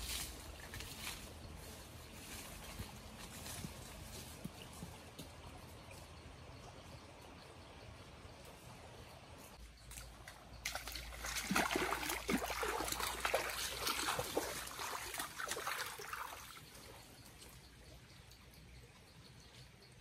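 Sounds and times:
running water: 10.1 - 17.6
water splashing as people wade: 10.2 - 17.0.

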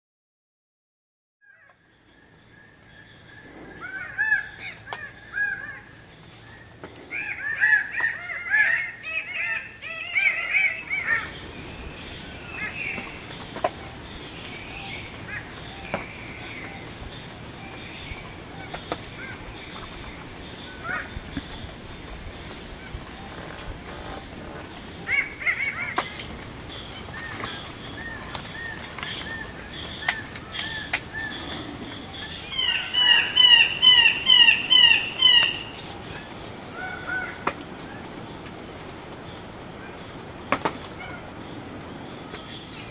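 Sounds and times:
bird calling: 1.4 - 38.1
high insect drone: 1.5 - 42.9
loud ringing bird calls: 24.9 - 35.8.

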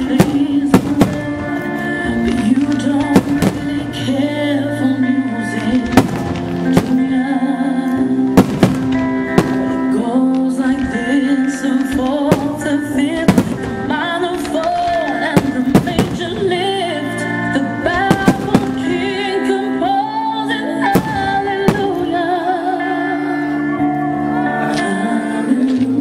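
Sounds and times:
fireworks bangs: 0.0 - 1.6, 2.3 - 4.0, 5.8 - 7.2, 8.4 - 10.0, 11.9 - 16.8, 17.9 - 19.0, 20.9 - 22.2
loud music with singing: 0.0 - 26.0.

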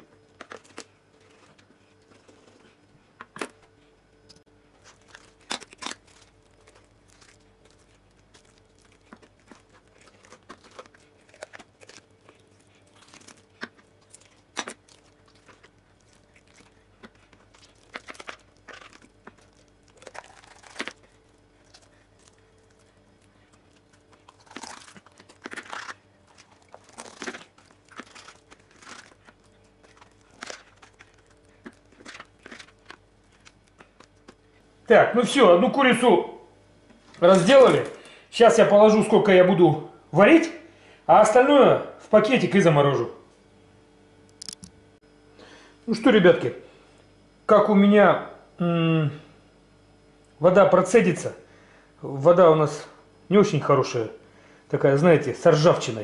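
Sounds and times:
tearing chicken skin and meat: 4.8 - 34.6.

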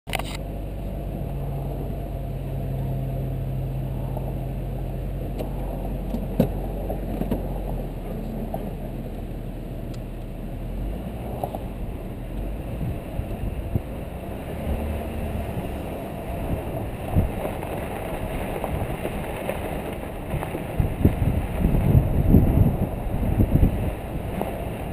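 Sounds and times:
car engine running: 0.1 - 24.9
vehicle knocks and rattles: 5.3 - 7.9
wind noise on microphone: 11.0 - 24.9.

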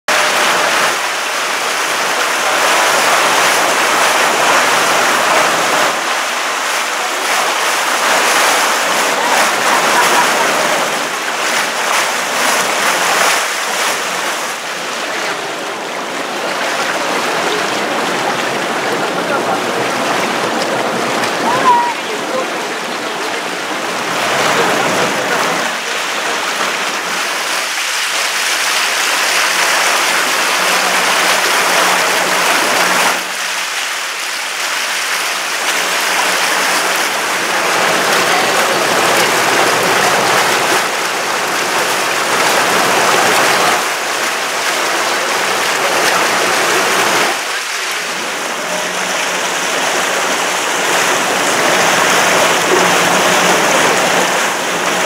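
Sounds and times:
water rushing in boat wake: 0.1 - 55.0.

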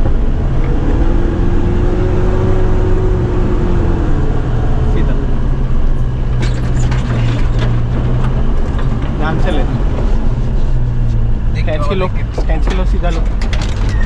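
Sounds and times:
engine pulling at low speed: 0.0 - 14.0
sharp knocks and rattles: 6.0 - 11.3, 12.2 - 14.0.

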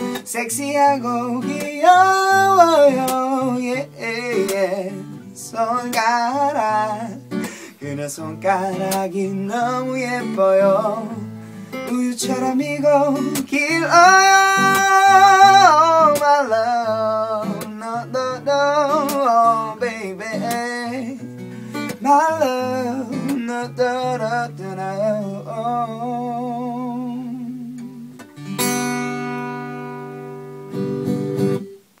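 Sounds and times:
man's wordless vocal: 0.0 - 21.3
acoustic guitar: 0.0 - 32.0.

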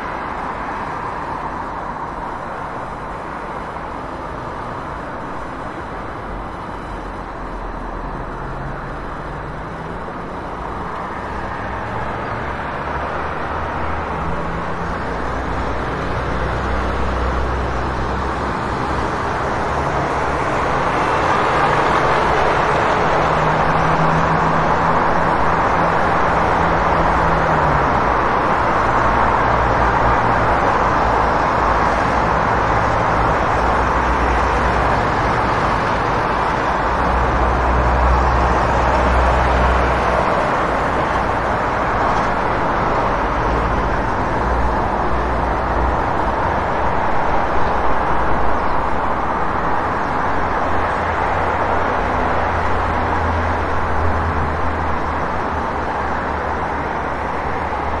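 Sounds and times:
car engines and tyre noise: 0.0 - 58.0.

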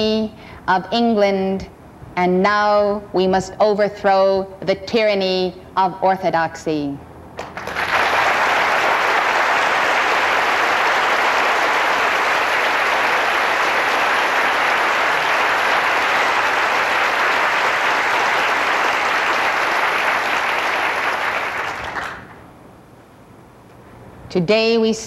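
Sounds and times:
audience applauding: 7.4 - 22.4.

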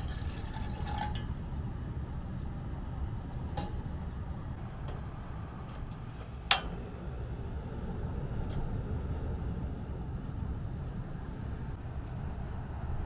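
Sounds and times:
gas hissing: 4.6 - 13.0
igniter click: 5.9 - 6.9.

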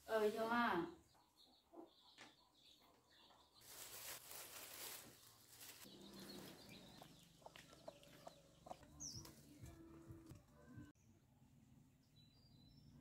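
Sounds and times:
chickens clucking: 1.1 - 9.8
high bird chirp: 5.7 - 9.7.

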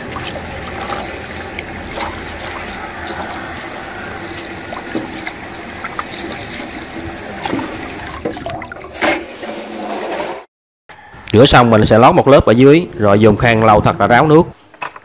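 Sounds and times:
water splashing over leaves: 0.0 - 9.1
tap water running into basin: 0.0 - 9.2.

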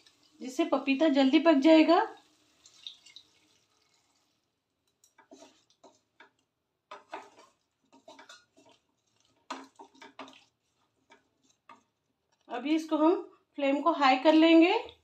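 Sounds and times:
wooden spatula scraping metal pan: 5.0 - 12.5.

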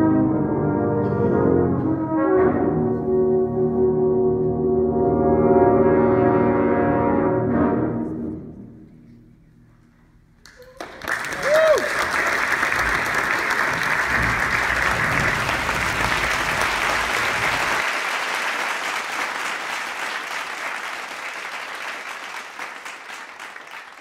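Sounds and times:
audience applauding: 10.4 - 24.0.

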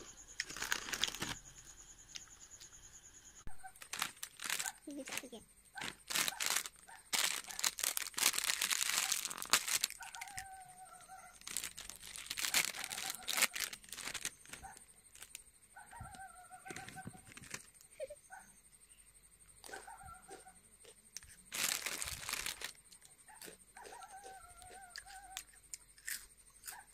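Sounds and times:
foil snack packet crinkling: 0.4 - 1.4, 3.7 - 10.5, 11.4 - 15.4, 17.3 - 17.7, 21.5 - 22.8
animal wavering call: 10.0 - 11.5, 15.8 - 17.3, 23.8 - 25.5.

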